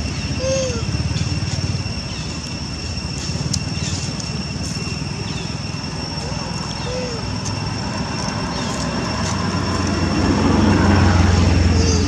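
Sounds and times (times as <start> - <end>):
steady low rumble: 0.0 - 12.0
baby monkey cry: 0.2 - 1.0, 6.2 - 7.4, 11.6 - 12.0.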